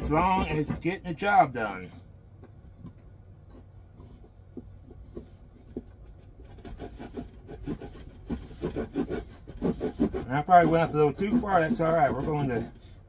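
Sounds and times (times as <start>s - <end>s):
hand saw cutting wood: 0.0s - 1.8s, 6.4s - 13.0s.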